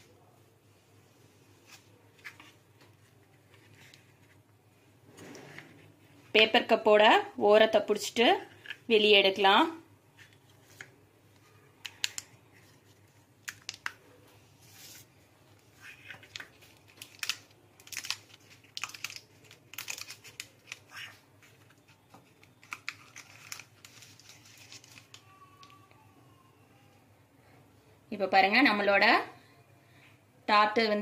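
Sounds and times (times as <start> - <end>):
paper liner crinkling: 10.2 - 25.8.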